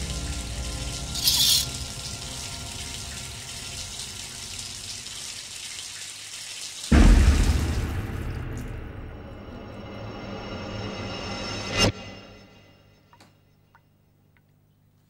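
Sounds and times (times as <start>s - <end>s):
shower water running: 0.0s - 9.1s
shower curtain swish: 1.2s - 1.7s.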